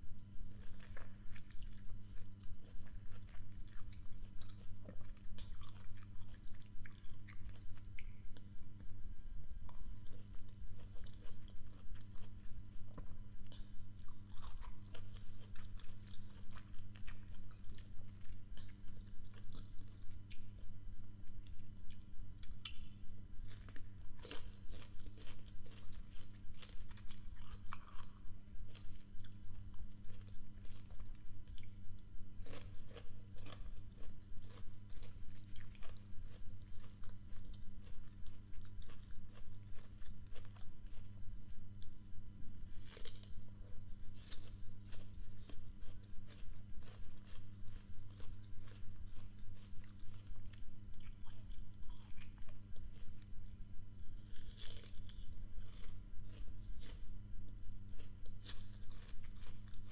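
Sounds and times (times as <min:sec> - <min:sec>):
low hum: 0:00.0 - 0:59.9
chewing crisp apple: 0:00.1 - 0:59.9.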